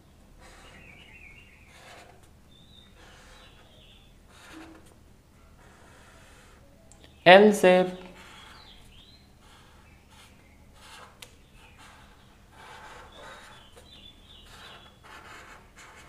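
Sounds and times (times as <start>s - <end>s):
marker tip squeak: 0.4s - 4.9s
marker scratching on paper: 0.4s - 6.6s, 8.0s - 16.0s.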